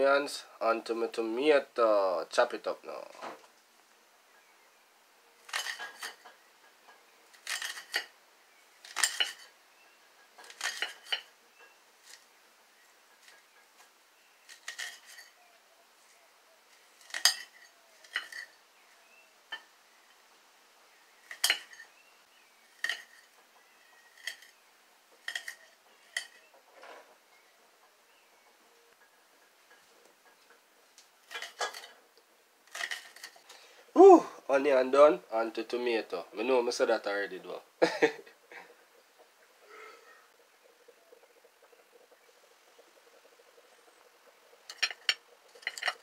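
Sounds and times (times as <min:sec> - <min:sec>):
knife blade clinking on plate: 0:08.9 - 0:09.5, 0:21.3 - 0:21.9.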